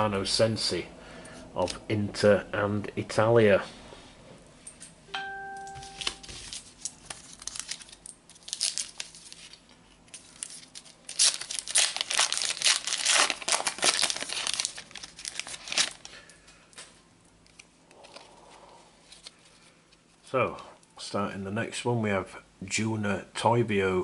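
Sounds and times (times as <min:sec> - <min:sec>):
foil packet crinkling and tearing: 0:06.0 - 0:16.3.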